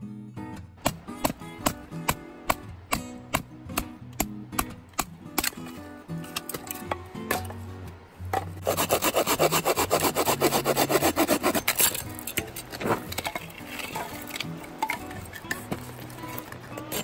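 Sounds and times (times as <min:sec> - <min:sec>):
hand saw cutting firewood: 0:08.6 - 0:14.4, 0:15.7 - 0:17.0.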